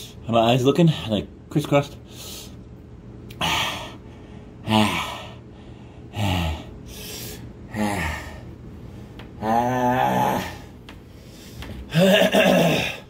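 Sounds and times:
man groaning: 4.6 - 5.4, 6.1 - 6.8, 7.7 - 8.5, 9.4 - 10.7, 11.9 - 13.0.

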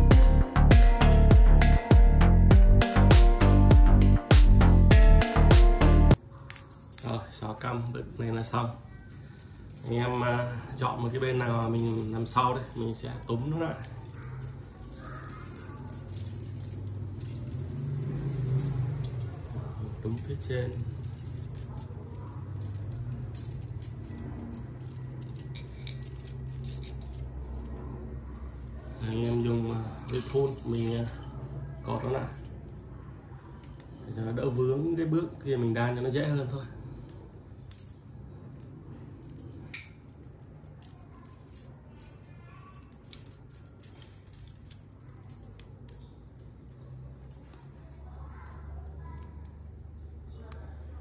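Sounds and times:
bicycle spokes clinking: 8.4 - 27.4.

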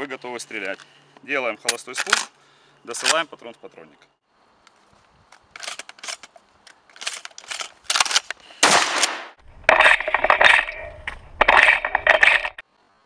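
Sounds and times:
shotgun shells loading clicks: 1.7 - 2.3, 5.4 - 8.4, 9.5 - 12.6.

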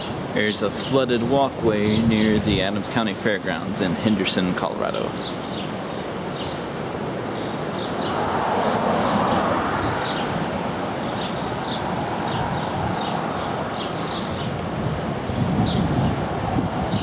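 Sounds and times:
river rushing over walkway: 0.0 - 17.0
high bird chirps: 7.4 - 8.2.

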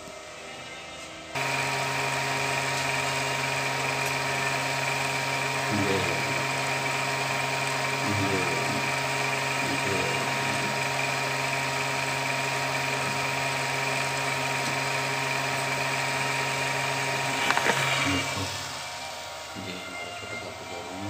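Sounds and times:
small electric motor whirring: 1.4 - 21.0
thin high tone: 17.2 - 21.0.

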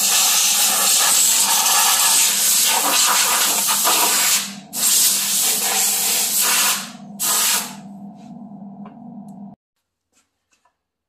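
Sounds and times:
compressed-air blow gun hissing: 0.0 - 7.8
steady low hum: 0.1 - 9.6.

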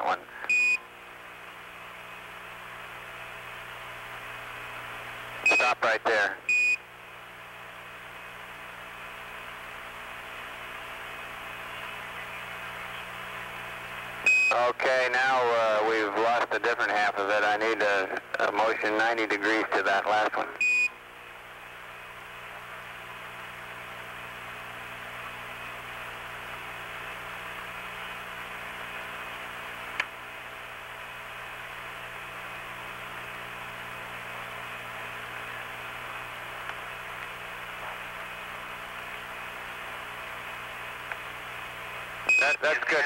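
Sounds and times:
radio channel hiss: 0.0 - 0.5, 5.5 - 6.5, 11.1 - 20.6, 42.4 - 43.0.

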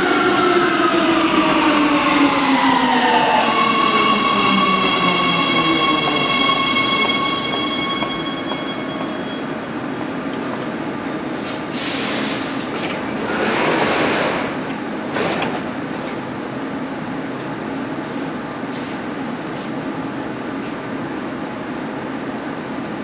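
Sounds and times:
air hissing: 11.7 - 12.7.

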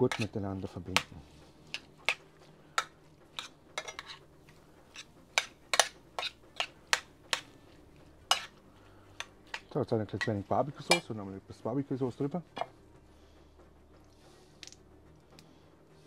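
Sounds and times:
metal spoon scraping metal pan: 0.0 - 0.4, 2.8 - 4.3, 4.9 - 7.6, 8.2 - 8.6.

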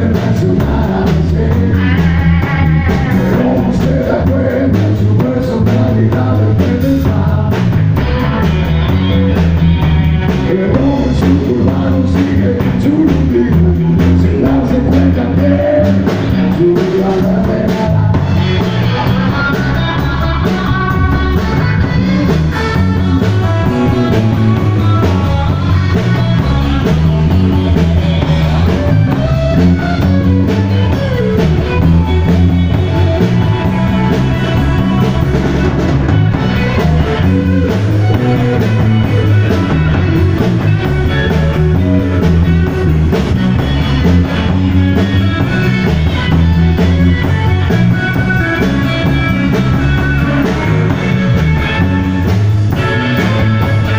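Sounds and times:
drum kit: 0.0 - 53.9
electric bass: 0.0 - 53.9
electric guitar: 0.0 - 53.9.

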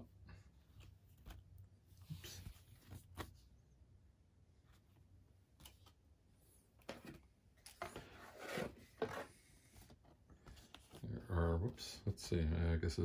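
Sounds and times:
cardboard sheets sliding and rubbing: 7.8 - 11.0.

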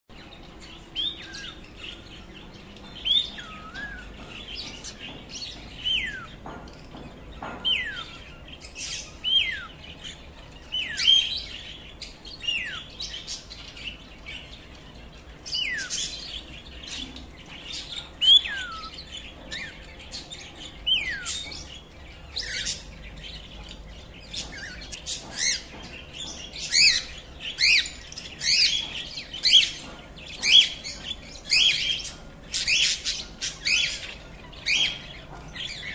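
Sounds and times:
parrots chirping and squawking: 0.2 - 35.9.

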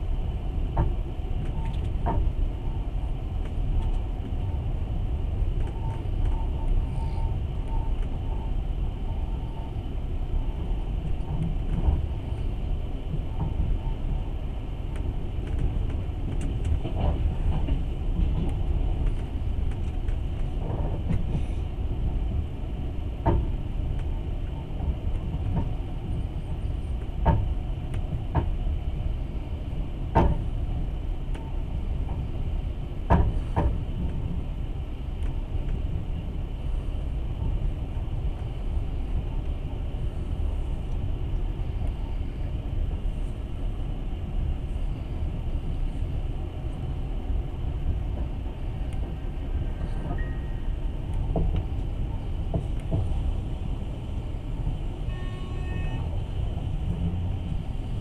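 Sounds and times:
train rumble inside carriage: 0.0 - 58.0.

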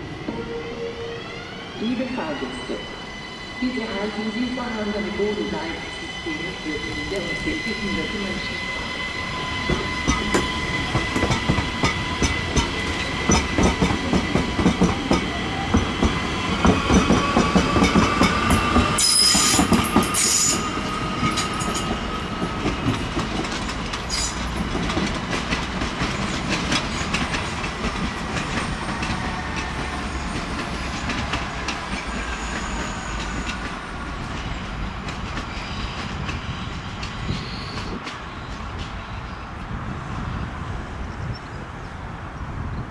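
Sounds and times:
electric train whine: 0.0 - 42.4
train wheels clattering: 9.6 - 39.0.

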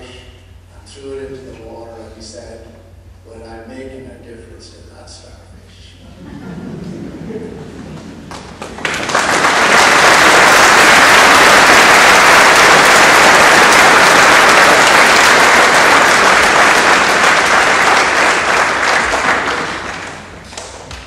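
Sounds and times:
crowd applauding: 8.0 - 21.0.

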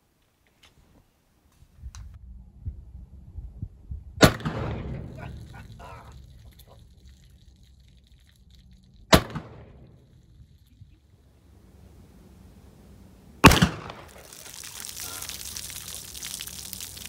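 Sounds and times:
revolver gunshots with echo: 4.2 - 5.2, 9.1 - 10.0, 13.4 - 14.2.

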